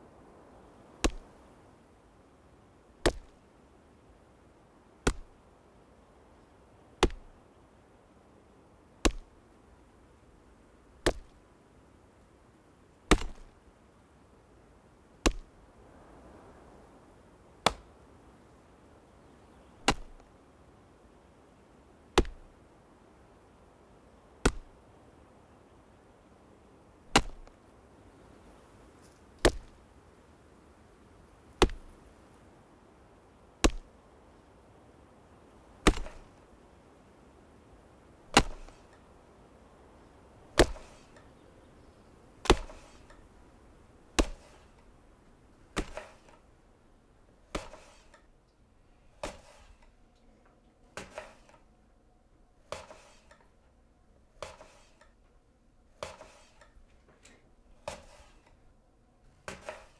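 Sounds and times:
axe chopping wood: 0:01.0 - 0:01.3, 0:03.0 - 0:03.4, 0:05.0 - 0:05.4, 0:07.0 - 0:07.3, 0:09.0 - 0:09.3, 0:11.0 - 0:11.4, 0:13.1 - 0:13.6, 0:15.2 - 0:15.5, 0:17.6 - 0:17.9, 0:19.8 - 0:20.3, 0:22.1 - 0:22.5, 0:24.4 - 0:24.8, 0:27.1 - 0:27.5, 0:29.4 - 0:29.8, 0:31.6 - 0:31.9, 0:33.6 - 0:33.9, 0:35.8 - 0:36.4, 0:38.3 - 0:39.0, 0:40.5 - 0:41.2, 0:42.4 - 0:43.2, 0:44.1 - 0:44.8, 0:45.7 - 0:46.4, 0:47.5 - 0:48.2, 0:49.2 - 0:49.8, 0:51.0 - 0:51.6, 0:52.7 - 0:53.4, 0:54.4 - 0:55.0, 0:56.0 - 0:56.6, 0:57.8 - 0:58.5, 0:59.4 - 0:59.9.

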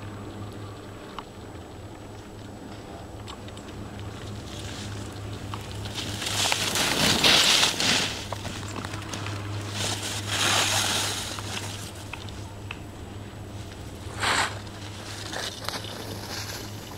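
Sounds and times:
skis scraping over snow: 0:04.5 - 0:12.0, 0:14.0 - 0:16.9.

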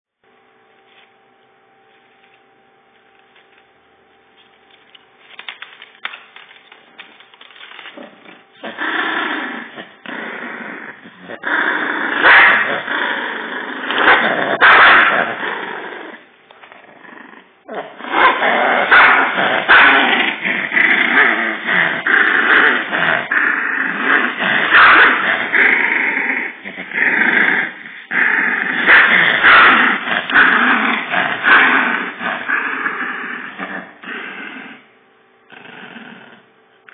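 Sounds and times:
dog growling: 0:07.8 - 0:34.9, 0:35.5 - 0:36.5.

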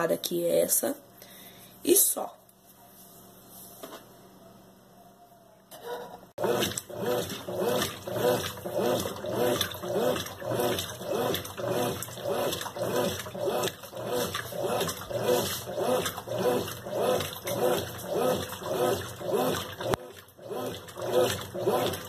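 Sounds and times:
washing machine swishing water: 0:06.4 - 0:22.0.

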